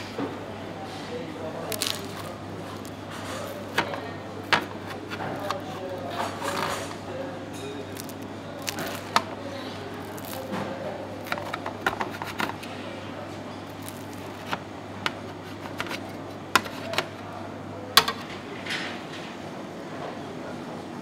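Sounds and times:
blade cutting crisp pastry: 0:01.6 - 0:12.8, 0:13.5 - 0:17.3.

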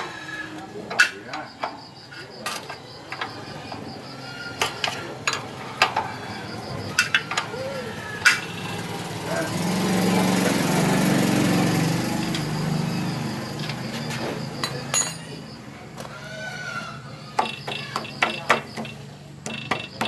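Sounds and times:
small engine running: 0:07.8 - 0:14.7
metal clinks: 0:13.9 - 0:15.4.

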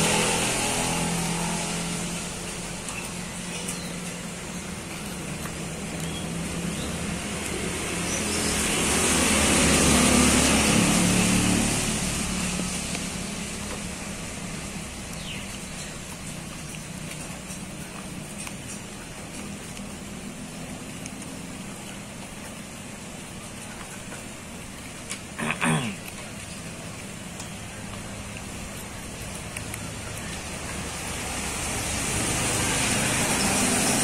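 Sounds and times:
vehicle engine passing by: 0:00.0 - 0:18.0, 0:30.1 - 0:34.0.

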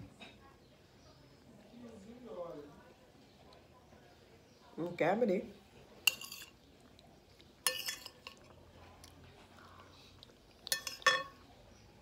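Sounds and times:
metal spoon clinking on glass bowl: 0:06.1 - 0:06.6, 0:07.6 - 0:08.5, 0:10.6 - 0:11.4.

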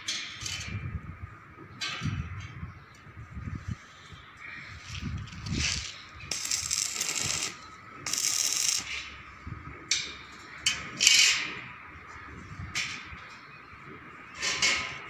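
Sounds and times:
arc welding crackling: 0:04.8 - 0:09.4.

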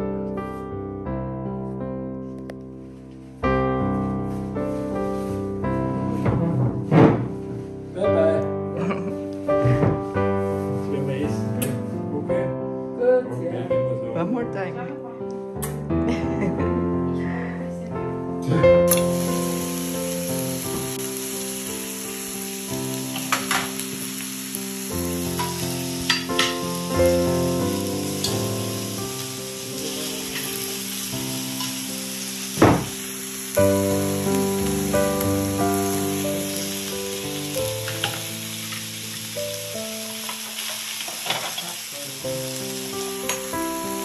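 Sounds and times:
background music of held chords: 0:00.0 - 0:40.7, 0:42.3 - 0:44.0
fish sizzling on a hot grill: 0:18.9 - 0:44.0.

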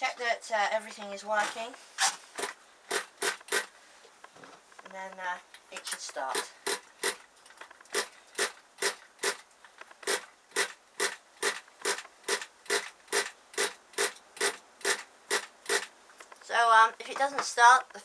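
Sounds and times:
pull-starter cord rasp: 0:02.4 - 0:03.7, 0:06.6 - 0:07.2, 0:07.9 - 0:09.4, 0:10.0 - 0:15.9.

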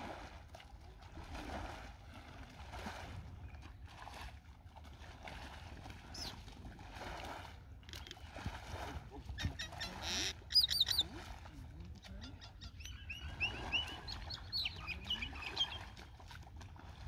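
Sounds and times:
rakes swishing through mud water: 0:00.0 - 0:17.0.

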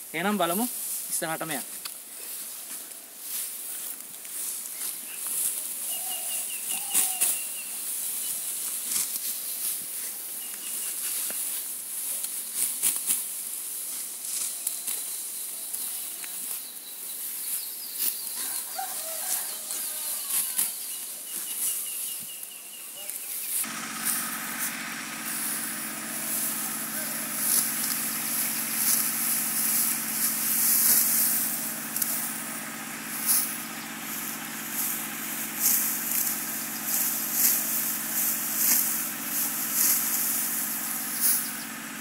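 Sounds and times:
birds chirping trills: 0:04.6 - 0:08.7, 0:14.5 - 0:42.0
rustling and crackling: 0:23.4 - 0:41.7
steady motor hum: 0:23.6 - 0:42.0.

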